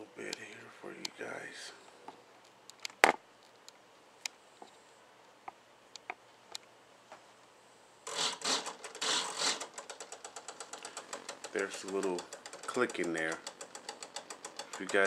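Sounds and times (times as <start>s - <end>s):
servo buzzing chatter: 8.0s - 15.0s
servo clicks: 8.1s - 15.0s.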